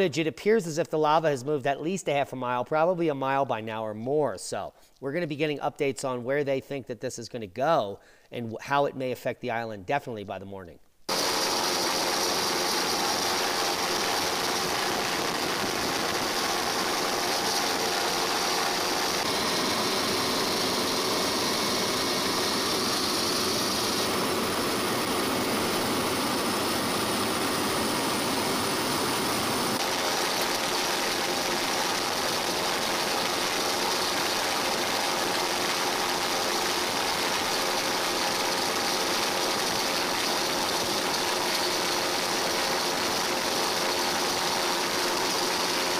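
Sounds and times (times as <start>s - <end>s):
engine drone with hiss: 11.1s - 34.5s.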